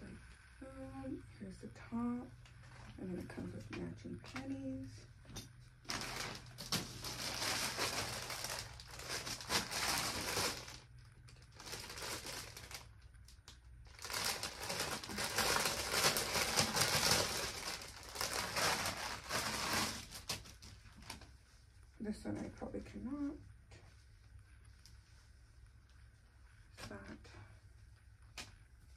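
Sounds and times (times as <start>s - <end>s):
plastic bag crinkling: 5.8s - 21.3s.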